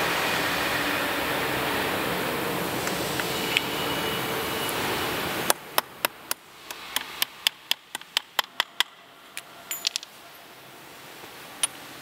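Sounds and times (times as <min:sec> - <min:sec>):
steady rushing hum: 0:00.0 - 0:08.3.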